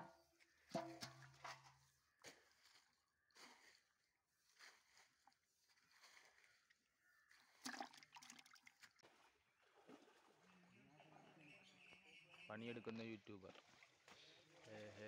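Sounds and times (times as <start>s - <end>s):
water splashing and sloshing: 0.5s - 10.6s, 13.4s - 15.0s.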